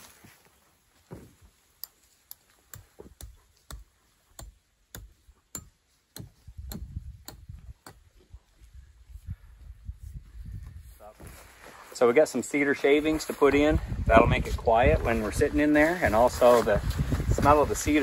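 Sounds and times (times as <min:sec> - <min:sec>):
hammer striking metal stake: 0:01.8 - 0:08.0.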